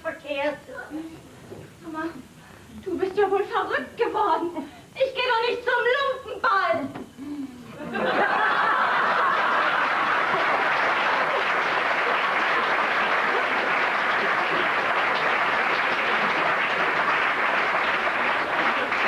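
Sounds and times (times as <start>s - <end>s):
audience applauding: 8.0s - 19.0s.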